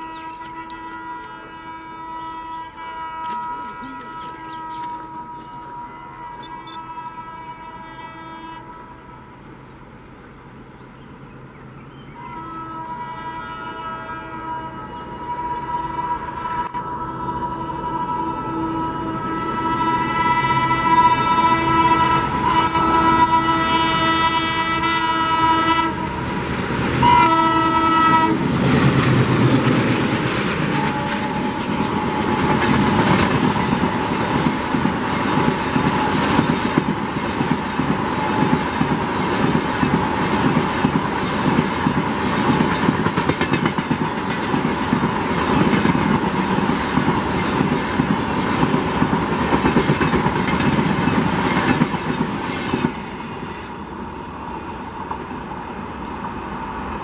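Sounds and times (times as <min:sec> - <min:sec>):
locomotive horn honk: 0:00.0 - 0:09.3, 0:12.1 - 0:26.2, 0:27.0 - 0:28.6, 0:30.6 - 0:33.3
train clattering over rail joints: 0:26.4 - 0:53.8.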